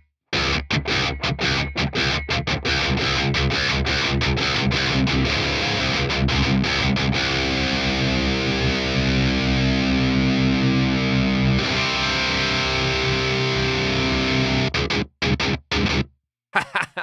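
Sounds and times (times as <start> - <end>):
distorted electric guitar chords: 0.4 - 16.1.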